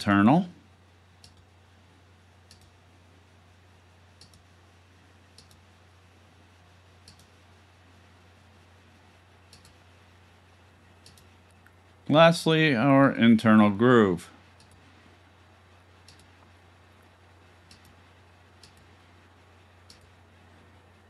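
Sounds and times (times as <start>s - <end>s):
low steady hum: 0.0s - 21.0s
computer mouse clicking: 1.2s - 1.5s, 2.5s - 2.8s, 4.2s - 4.5s, 5.3s - 5.6s, 7.0s - 7.4s, 9.5s - 9.8s, 11.0s - 11.8s, 14.6s - 14.8s, 16.0s - 16.5s, 17.6s - 18.0s, 18.6s - 18.9s, 19.8s - 20.2s.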